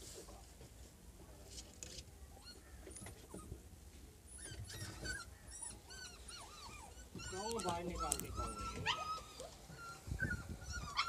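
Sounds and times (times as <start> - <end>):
puppies whimpering: 4.3 - 11.0.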